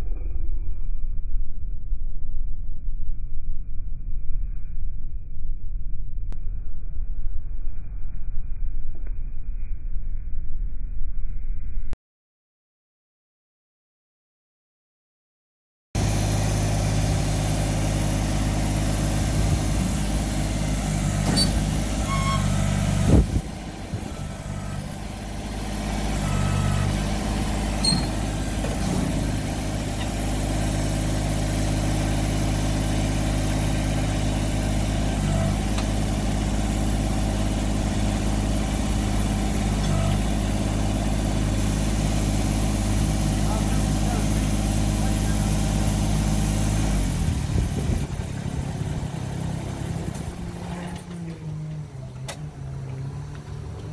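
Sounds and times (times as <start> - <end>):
diesel engine idling: 16.0 - 53.9.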